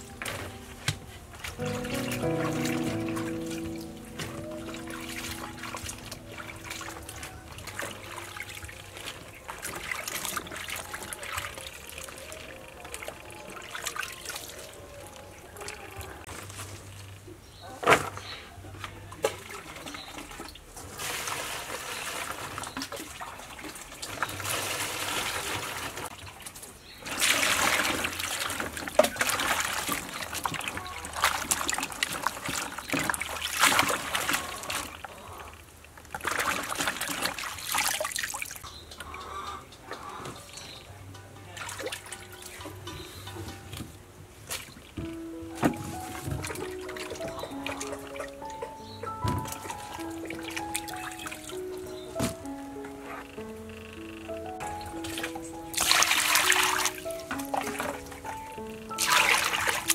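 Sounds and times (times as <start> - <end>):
hands splashing in water: 55.0 - 58.3, 58.9 - 59.9.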